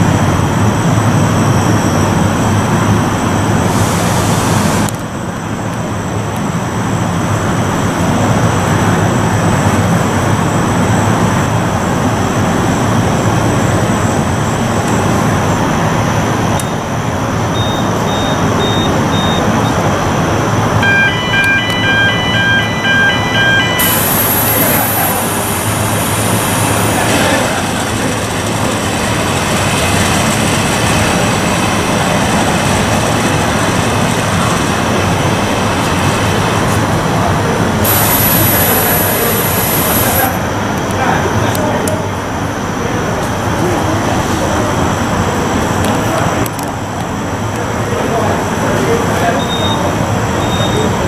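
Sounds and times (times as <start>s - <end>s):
loud machinery noise: 0.0s - 51.0s
short beeps: 17.5s - 19.8s, 20.8s - 27.0s, 49.4s - 51.0s
chiming warning beeper: 17.6s - 19.8s, 20.8s - 27.2s, 49.4s - 51.0s.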